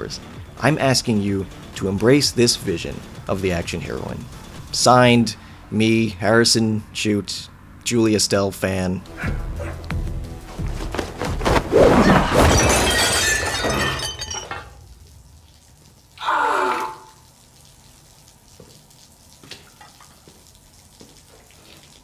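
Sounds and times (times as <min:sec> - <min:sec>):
porcelain breaking: 0:12.0 - 0:14.8
shards ringing and scattering: 0:12.4 - 0:14.8
brief cry falling in pitch: 0:16.2 - 0:17.2.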